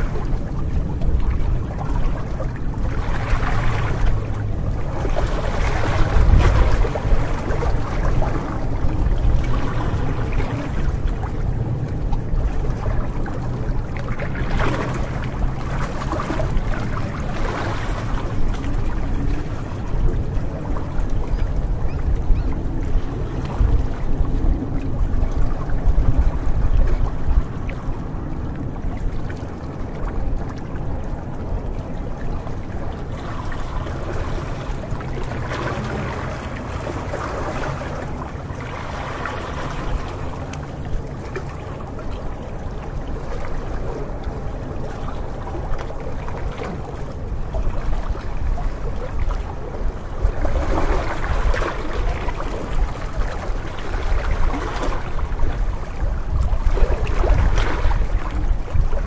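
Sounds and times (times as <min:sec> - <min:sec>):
waves splashing against rocks: 0:00.0 - 0:21.1, 0:32.6 - 0:59.0.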